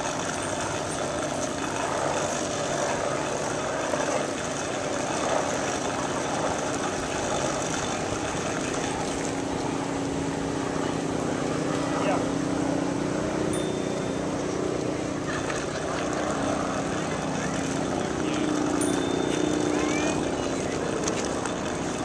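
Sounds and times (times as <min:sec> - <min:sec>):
bike rolling on paved path: 0:00.0 - 0:22.0
low steady hum: 0:00.0 - 0:22.0.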